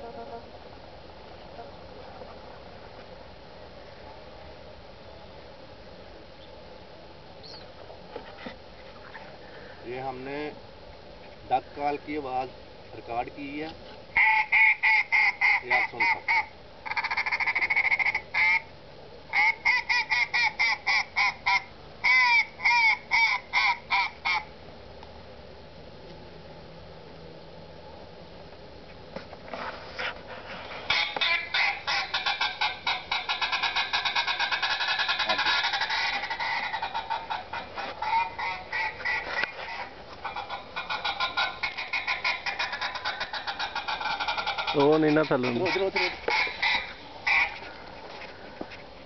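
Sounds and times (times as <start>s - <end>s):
recorded duck quacking: 14.2s - 18.7s, 19.3s - 24.5s, 30.8s - 48.0s.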